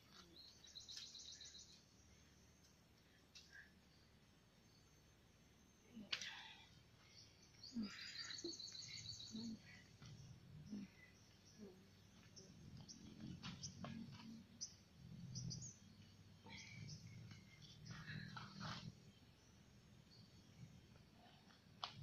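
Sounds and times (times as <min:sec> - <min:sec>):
birds chirping: 0:00.2 - 0:02.3, 0:06.7 - 0:21.4.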